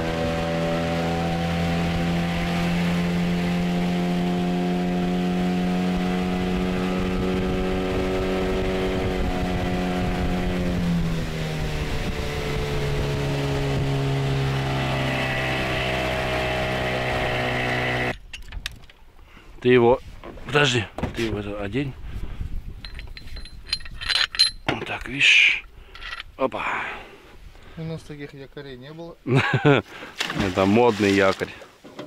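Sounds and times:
outboard motor running: 0.0 - 18.2.

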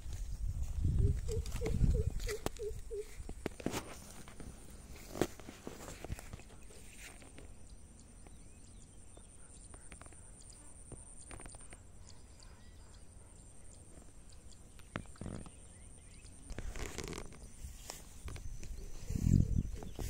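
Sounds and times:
low wind rumble: 0.0 - 3.5, 18.2 - 20.0
rustles and steps in grass: 0.0 - 7.6, 16.5 - 20.0.

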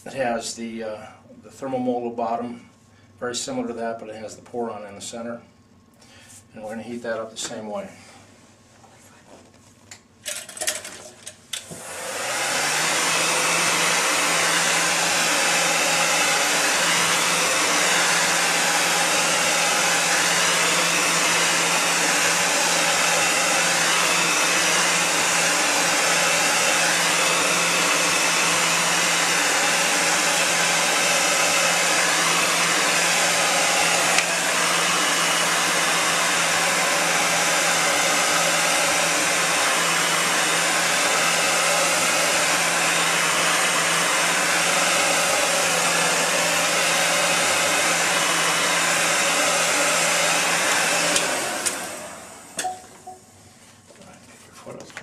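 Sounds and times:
heat gun blowing air: 11.5 - 52.7.

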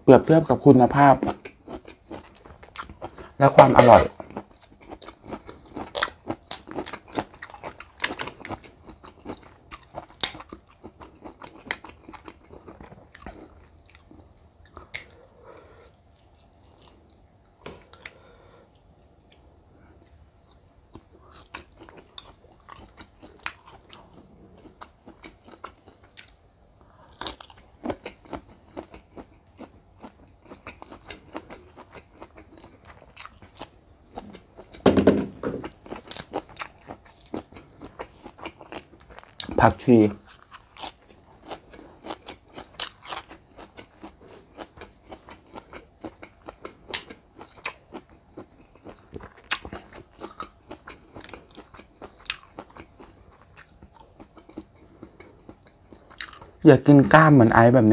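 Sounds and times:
chewing: 1.2 - 17.2, 20.0 - 34.8, 35.6 - 39.6, 40.2 - 56.6.

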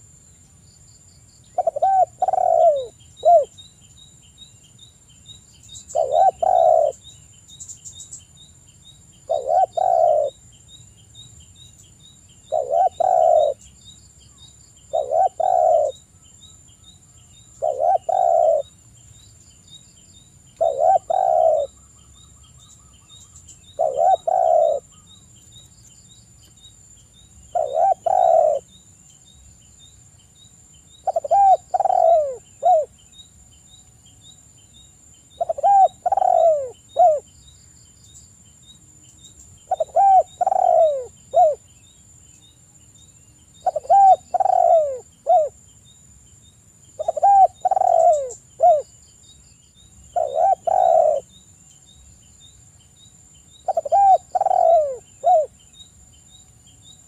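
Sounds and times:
dove cooing: 1.6 - 3.6, 5.9 - 7.0, 9.3 - 10.4, 12.5 - 13.6, 14.9 - 16.0, 17.6 - 18.7, 20.6 - 21.8, 23.7 - 25.0, 27.5 - 28.7, 31.0 - 32.9, 35.4 - 37.3, 39.7 - 41.6, 43.6 - 45.6, 47.0 - 48.9, 50.2 - 51.3, 53.7 - 55.5.

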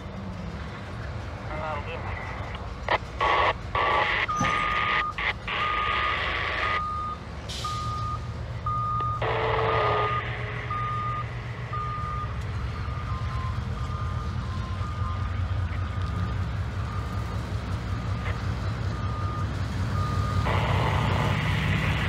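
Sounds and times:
diesel locomotive rumbling: 0.0 - 22.0
backup alarm beeping: 2.9 - 15.3.

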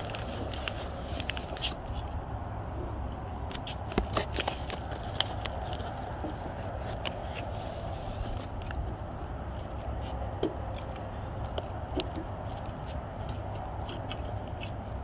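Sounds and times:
small clicks and scrapes: 0.0 - 15.0
steady low rumble: 0.0 - 15.0.

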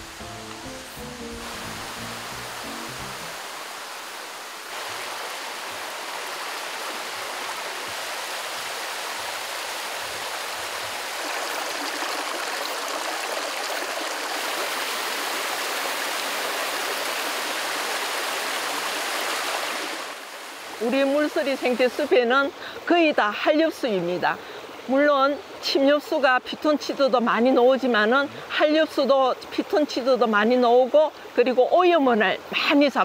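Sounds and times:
stream running over rocks: 0.0 - 33.0.

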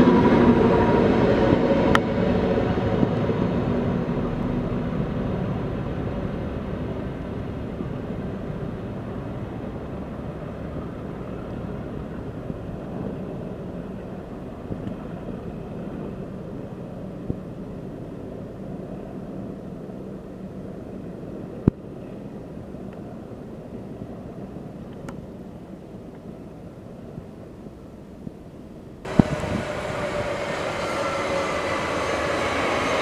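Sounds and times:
train passing: 0.0 - 17.2, 29.0 - 33.0
wheels on rails: 29.1 - 33.0.

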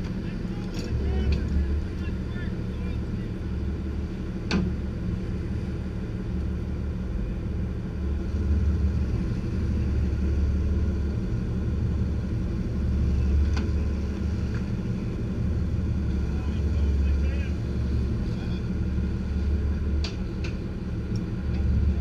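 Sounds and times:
boat engine rumbling: 0.0 - 22.0.

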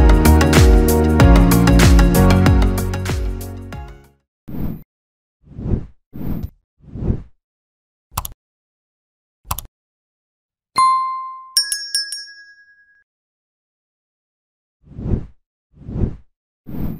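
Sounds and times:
mouse clicks: 8.1 - 8.4, 9.5 - 9.7
bright ding: 10.8 - 13.0
higher bell chimes: 10.8 - 13.0.

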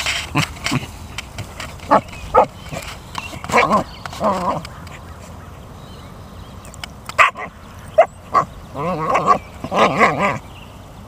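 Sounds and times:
dog vocalizing: 7.2 - 10.4.

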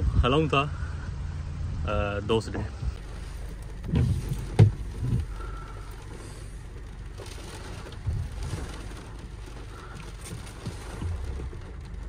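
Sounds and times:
rain on a car: 2.2 - 12.0
soft thumps: 2.8 - 12.0.

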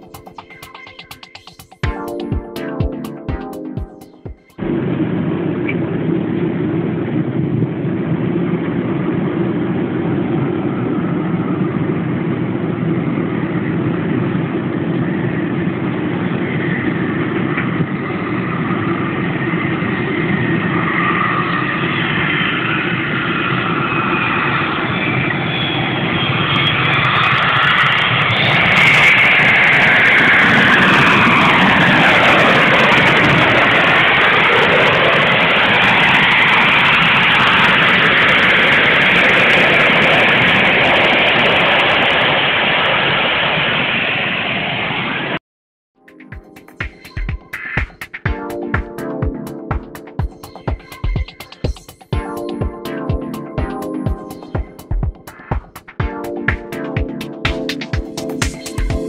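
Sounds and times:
jet engine whine: 0.0 - 45.4, 46.2 - 59.0
jet engines rumbling: 0.0 - 45.4.

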